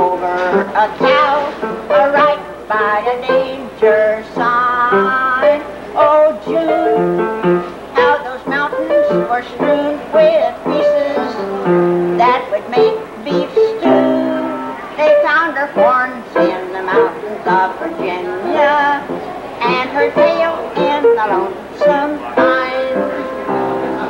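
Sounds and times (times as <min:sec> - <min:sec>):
piano: 0:00.0 - 0:24.0
melody parts: 0:06.5 - 0:07.8.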